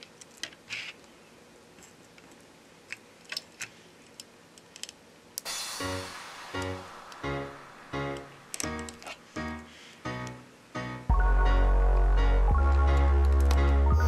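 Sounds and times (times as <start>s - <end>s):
small parts clicking: 0.0s - 1.1s, 2.2s - 5.5s
background music: 5.5s - 14.0s.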